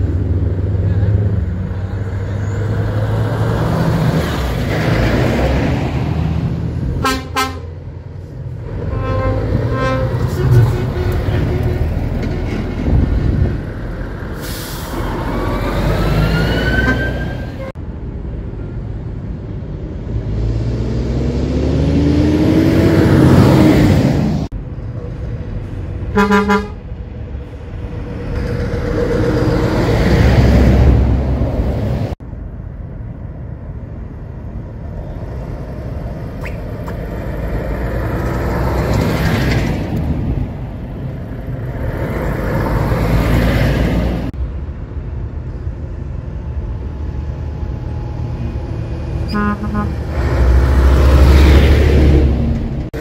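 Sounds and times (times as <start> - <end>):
bus passing: 0.0 - 53.0
heavy trucks driving past: 0.0 - 53.0
horn toot: 7.0 - 7.7, 8.8 - 11.9, 26.1 - 26.8, 49.3 - 50.2.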